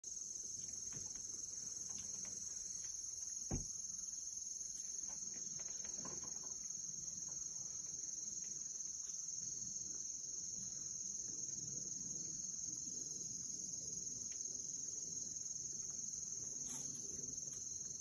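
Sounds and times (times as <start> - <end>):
insect chorus trilling: 0.1 - 18.0
dull thump: 3.4 - 3.9.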